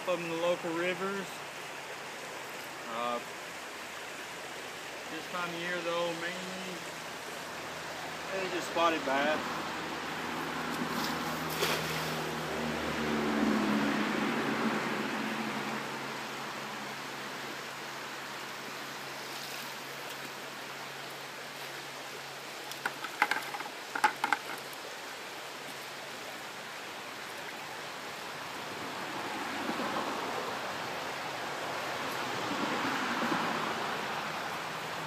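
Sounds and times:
creek water flowing: 0:00.0 - 0:35.0
sharp knocks clattering: 0:22.8 - 0:24.7.

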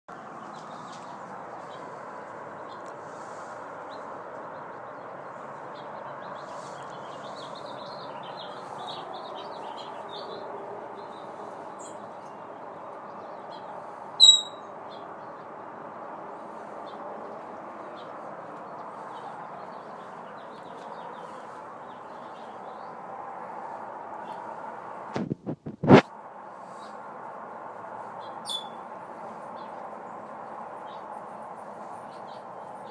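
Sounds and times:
parrot high whistle: 0:14.2 - 0:14.6
parrot chirping: 0:14.2 - 0:14.7, 0:28.4 - 0:28.8.

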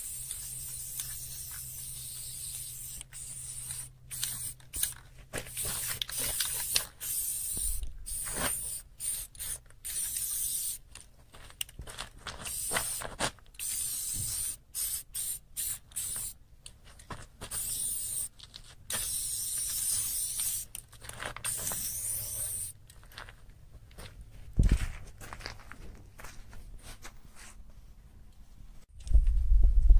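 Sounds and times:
spray paint can hissing: 0:00.0 - 0:10.9, 0:12.4 - 0:16.4, 0:17.4 - 0:20.8, 0:21.4 - 0:22.8.

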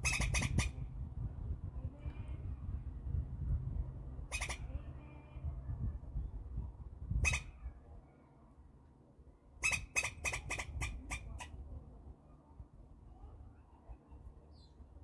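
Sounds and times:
squirrel harsh scratchy calls: 0:00.0 - 0:00.8, 0:04.3 - 0:04.7, 0:07.2 - 0:07.6, 0:09.6 - 0:11.5.

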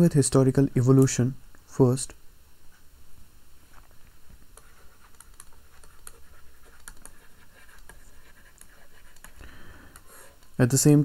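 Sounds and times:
stylus clicking on tablet screen: 0:04.5 - 0:10.5.

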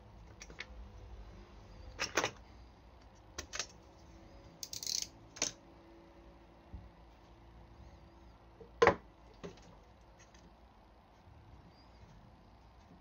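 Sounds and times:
metal parts clicking on surface: 0:04.6 - 0:05.6.

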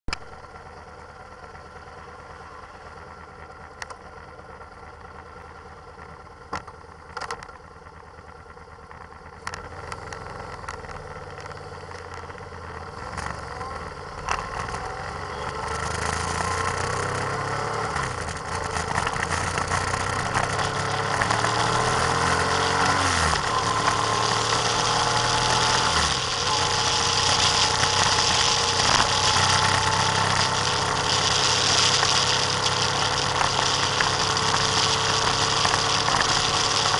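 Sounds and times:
vehicle engine accelerating: 0:09.4 - 0:36.9.

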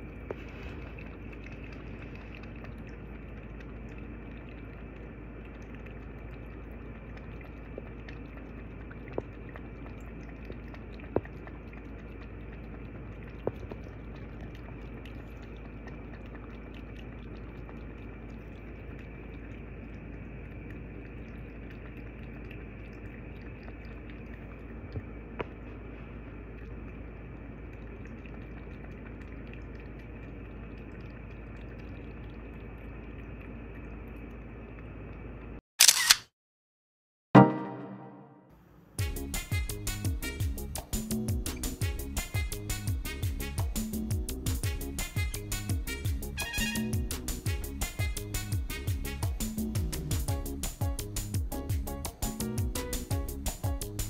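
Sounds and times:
kitten licking a glass bowl: 0:00.1 - 0:24.4.

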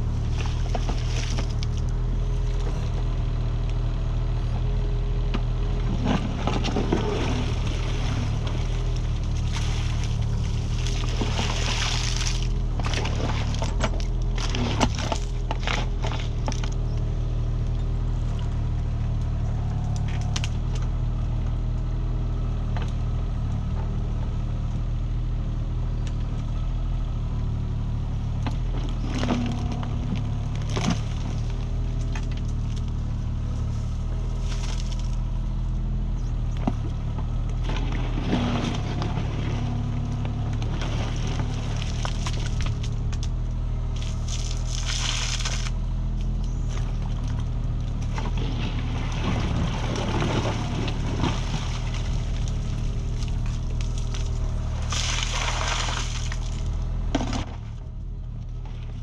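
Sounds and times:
excavator engine running: 0:00.0 - 0:59.0
bucket scraping through soil: 0:06.0 - 0:16.5, 0:37.6 - 0:42.9, 0:44.0 - 0:45.8, 0:48.0 - 0:57.6.

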